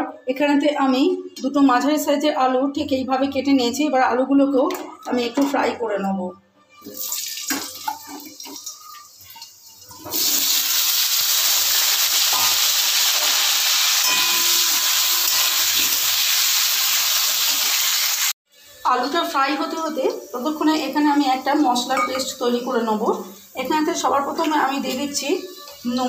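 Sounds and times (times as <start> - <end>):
potatoes sizzling in hot oil: 8.6 - 18.3, 19.0 - 26.0.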